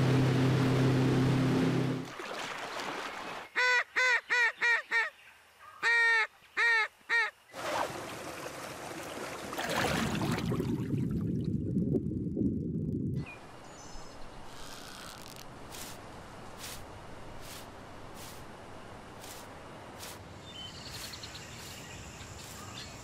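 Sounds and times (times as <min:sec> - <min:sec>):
outboard boat motor running: 0:00.0 - 0:02.1
waterfowl call: 0:03.6 - 0:07.4.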